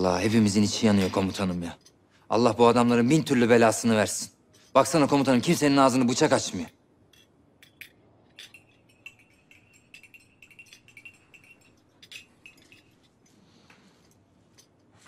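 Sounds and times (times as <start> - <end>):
tea glasses and spoons clinking: 4.5 - 15.0.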